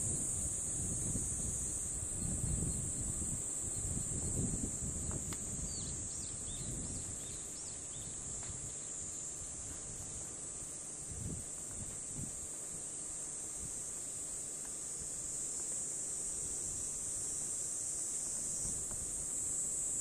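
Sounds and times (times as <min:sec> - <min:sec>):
wind buffeting microphone: 0:00.0 - 0:08.8, 0:11.1 - 0:12.4
high-pitched insect drone: 0:00.0 - 0:20.0.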